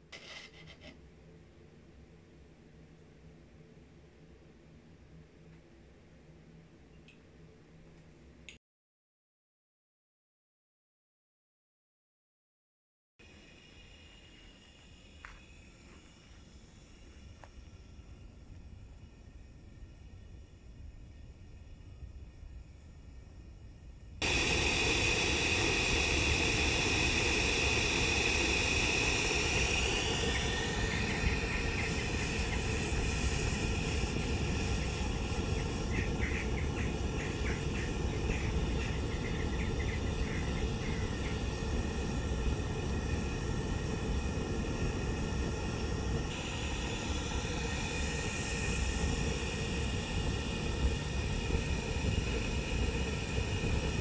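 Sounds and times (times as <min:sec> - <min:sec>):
gas burner rushing: 0:13.2 - 0:22.8, 0:24.1 - 0:54.0.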